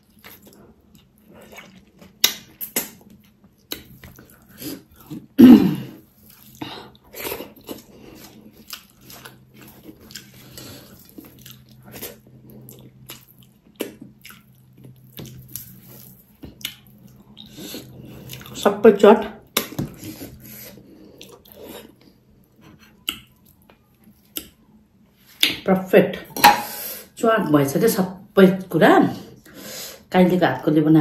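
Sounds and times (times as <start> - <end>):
chewing and wet smacking: 0.0 - 5.3, 6.2 - 18.6.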